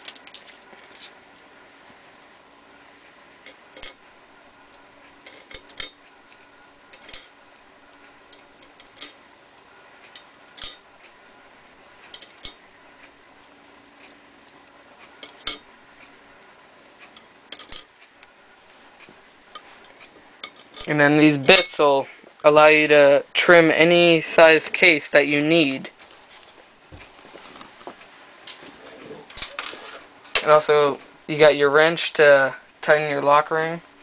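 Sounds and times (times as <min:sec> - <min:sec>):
small metal parts clicking: 0:05.2 - 0:07.3, 0:08.3 - 0:11.4, 0:12.0 - 0:13.2, 0:17.1 - 0:17.9.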